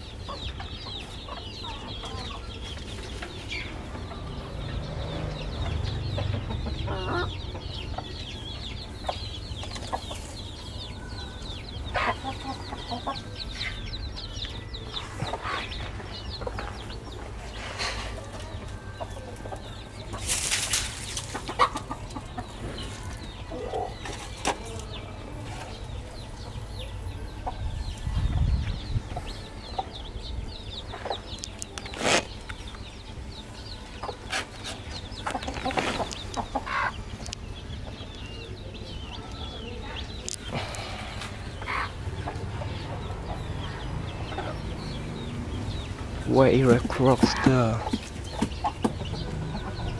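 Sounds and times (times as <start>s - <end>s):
chickens clucking: 0.0s - 49.9s
faint high chirping: 5.5s - 21.1s.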